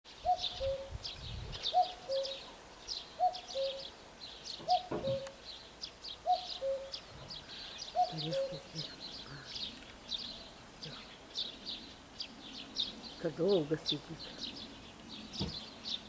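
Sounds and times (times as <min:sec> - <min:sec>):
songbirds chirping: 0:00.1 - 0:16.0
cuckoo calling: 0:00.2 - 0:12.0.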